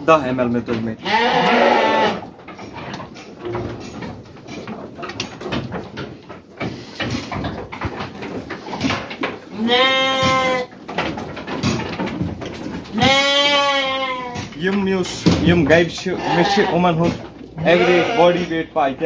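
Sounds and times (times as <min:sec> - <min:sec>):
sheep bleating: 0:01.0 - 0:02.3, 0:09.6 - 0:10.7, 0:12.9 - 0:14.4, 0:16.2 - 0:16.9, 0:17.6 - 0:18.5.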